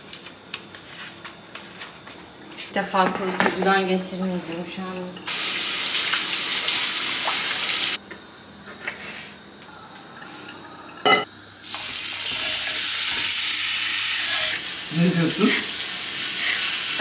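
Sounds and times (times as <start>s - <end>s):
kitchen tap running: 5.3s - 8.0s, 11.6s - 17.0s
steak sizzling on grill pan: 11.6s - 17.0s.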